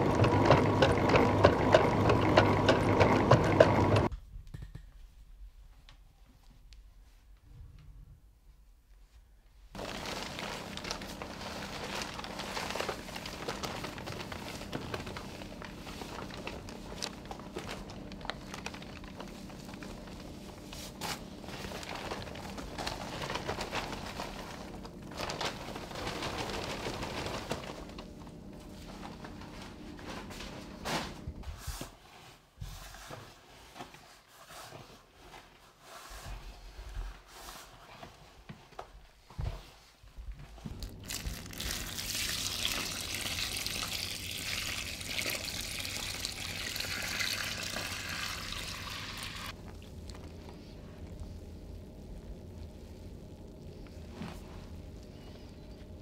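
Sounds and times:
flour mill humming: 0:00.0 - 0:04.1, 0:09.8 - 0:31.3, 0:40.7 - 0:54.1
hands rustling flour in tub: 0:09.8 - 0:28.1
flour pouring from chute: 0:20.7 - 0:27.9, 0:41.0 - 0:49.6.

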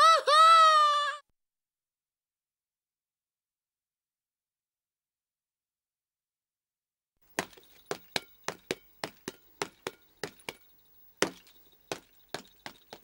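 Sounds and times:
sharp knocks: 0:07.3 - 0:13.0.

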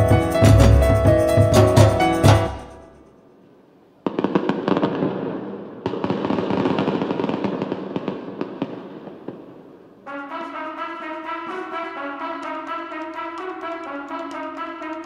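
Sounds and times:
music with brass notes: 0:00.0 - 0:02.9, 0:10.1 - 0:15.0.

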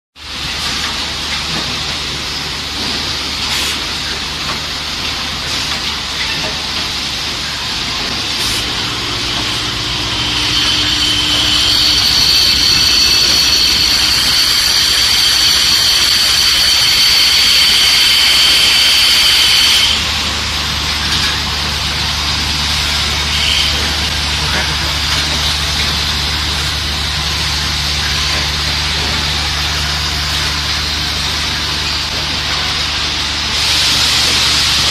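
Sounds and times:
machine humming and hissing: 0:00.2 - 0:34.9
high steady whine: 0:07.8 - 0:34.9.

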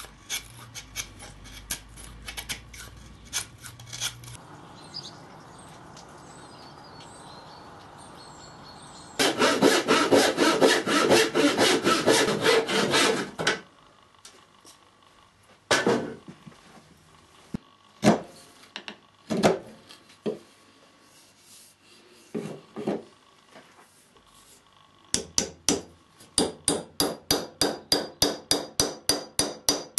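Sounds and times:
file rasping on wood: 0:09.2 - 0:13.4.

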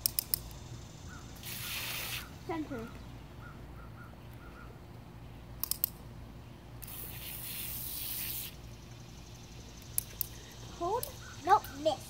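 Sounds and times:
water spray hissing: 0:01.4 - 0:02.4, 0:06.8 - 0:08.7.

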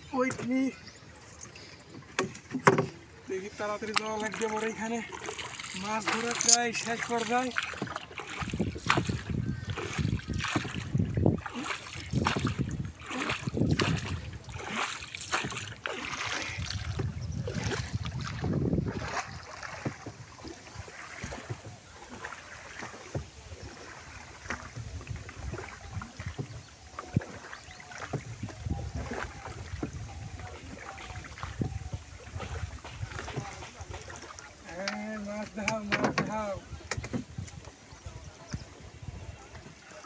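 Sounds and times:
paddle splashing in water: 0:00.0 - 0:40.0
water and wind noise: 0:00.0 - 0:40.0.

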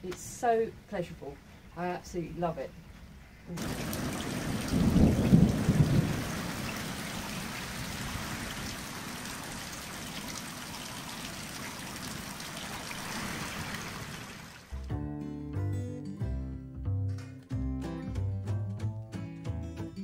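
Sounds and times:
rain falling: 0:02.9 - 0:14.8.

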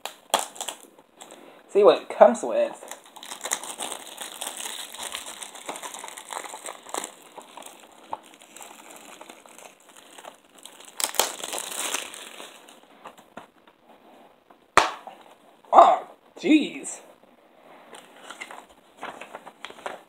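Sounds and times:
plastic packaging crinkling: 0:00.0 - 0:01.4, 0:02.7 - 0:13.4.

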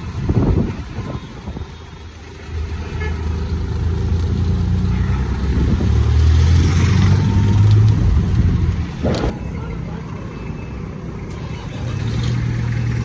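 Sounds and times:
road noise: 0:00.0 - 0:13.0
auto-rickshaw engine running: 0:10.5 - 0:13.0.

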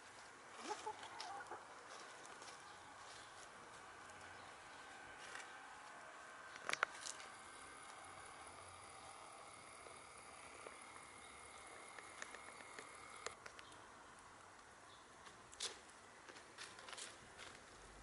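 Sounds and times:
hens pecking and scratching: 0:00.0 - 0:13.8.

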